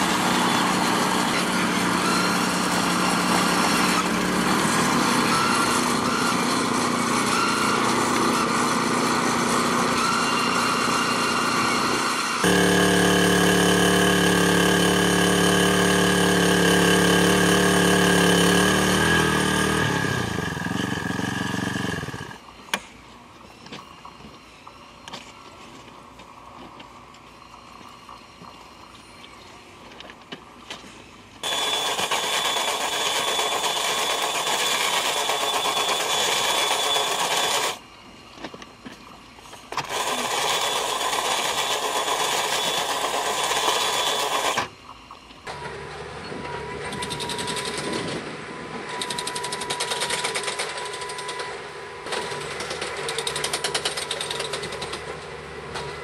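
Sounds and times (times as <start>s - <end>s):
rail drill whining: 0.0s - 22.7s, 31.4s - 38.2s, 39.1s - 56.0s
machine engine humming: 12.4s - 22.4s.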